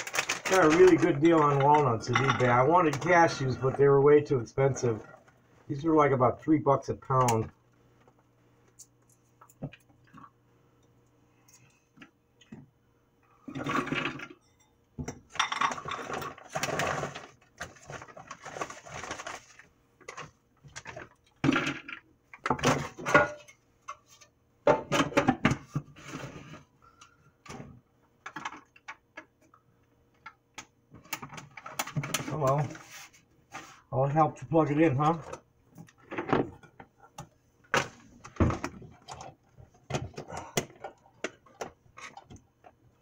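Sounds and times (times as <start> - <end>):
plastic bag crinkling: 0.0 - 3.5, 16.4 - 19.7.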